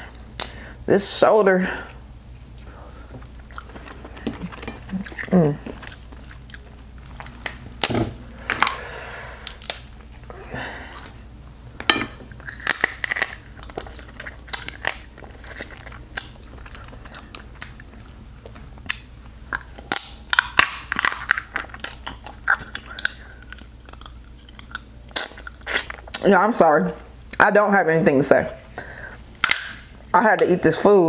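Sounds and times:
chewing and smacking: 0:02.2 - 0:07.9, 0:12.4 - 0:26.2
crab shell cracking: 0:09.4 - 0:10.3, 0:12.4 - 0:17.9, 0:18.8 - 0:26.2, 0:29.2 - 0:30.5.

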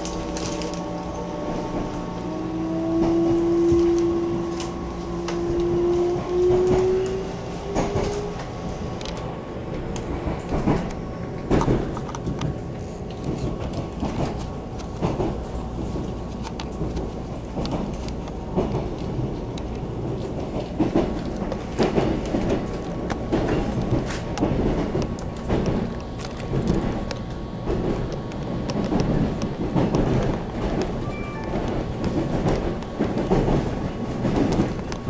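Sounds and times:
train motor whine: 0:00.0 - 0:08.5
steady train rumble: 0:00.0 - 0:35.0
wheels clacking over rail joints: 0:02.9 - 0:35.0.

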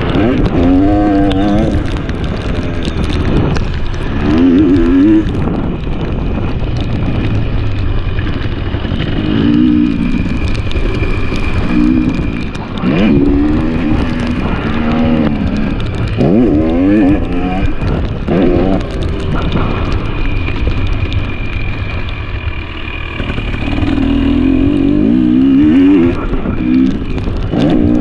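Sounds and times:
dirt bike engine revving: 0:00.0 - 0:03.4, 0:04.0 - 0:28.0
wind rush on microphone: 0:00.0 - 0:28.0.

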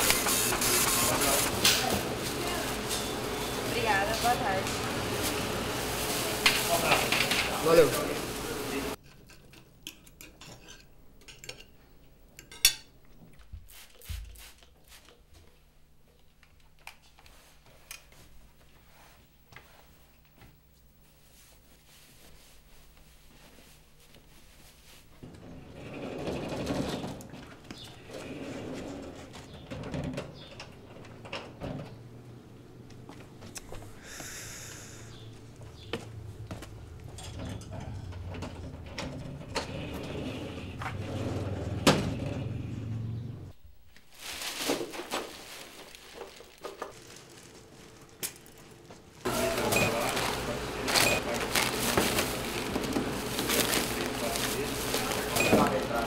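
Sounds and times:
soft fabric rustling: 0:21.0 - 0:25.2.

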